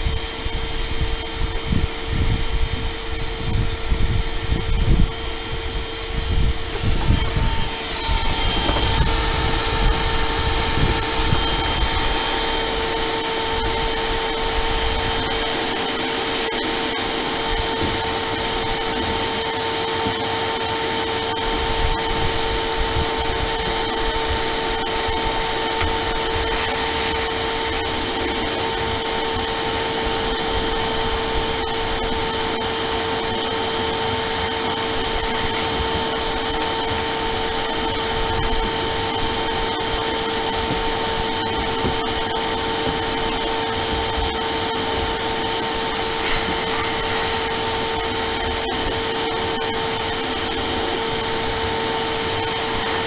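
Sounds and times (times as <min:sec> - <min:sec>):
shop vacuum whining hum: 0:00.0 - 0:53.0
vacuum hose knocking: 0:06.9 - 0:12.0, 0:40.5 - 0:44.3.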